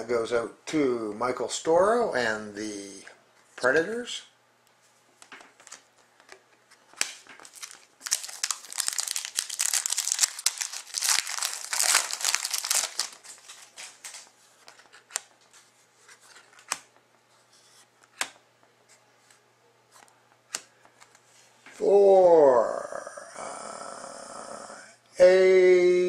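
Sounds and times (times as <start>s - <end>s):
foil wrapper tearing and crinkling: 7.1s - 14.2s.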